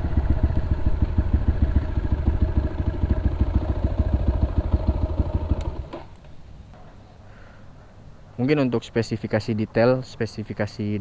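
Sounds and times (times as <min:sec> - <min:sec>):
motorcycle engine puttering: 0:00.0 - 0:06.2.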